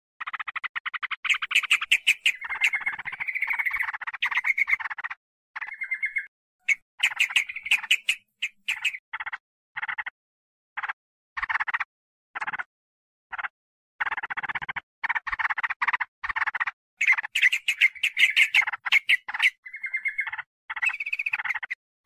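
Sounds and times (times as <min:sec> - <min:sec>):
bulbul chattering calls: 0:00.2 - 0:09.4, 0:14.0 - 0:21.8.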